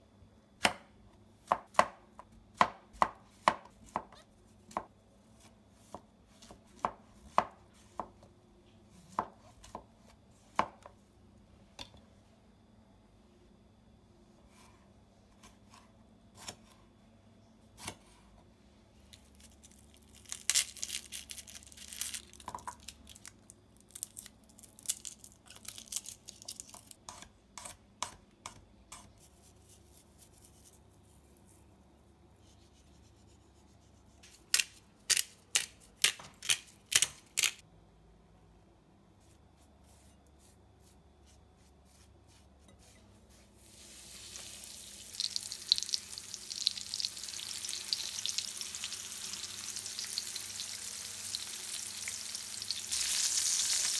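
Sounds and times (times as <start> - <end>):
oil sizzling in a pan: 43.6 - 53.9.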